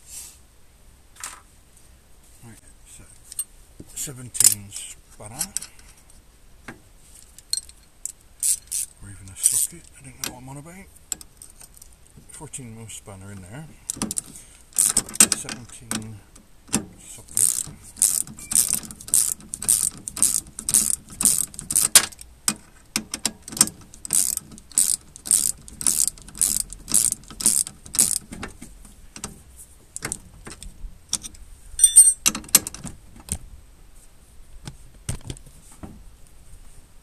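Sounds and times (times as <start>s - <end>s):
ratchet wrench clicking: 7.6s - 9.7s, 13.9s - 15.5s, 17.3s - 22.2s, 23.0s - 28.4s.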